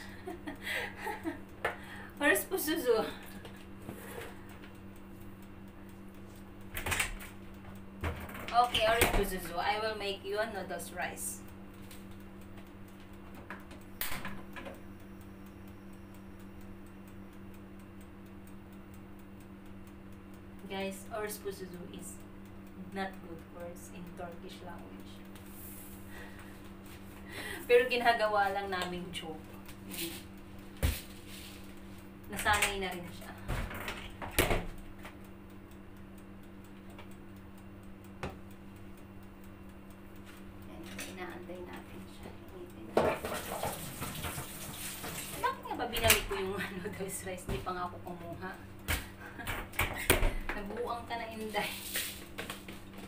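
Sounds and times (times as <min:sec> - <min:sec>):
hot plate ticking: 0:00.0 - 0:53.0
steady low hum: 0:00.0 - 0:53.0
gas stove igniter clicking: 0:13.5 - 0:14.8.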